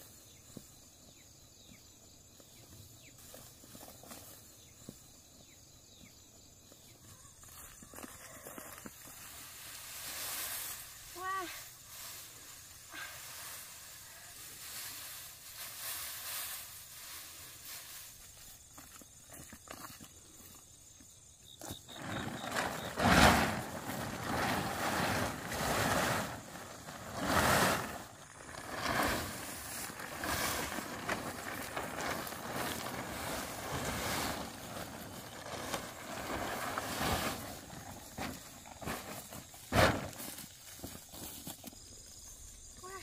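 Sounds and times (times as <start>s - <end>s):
plastic tarpaulin rustling: 7.5s - 19.0s, 21.9s - 41.8s.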